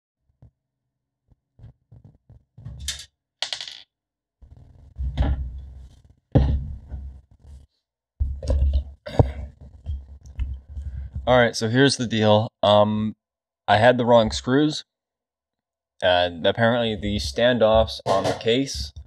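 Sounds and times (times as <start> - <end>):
metal case knocks and thuds: 6.4 - 7.1.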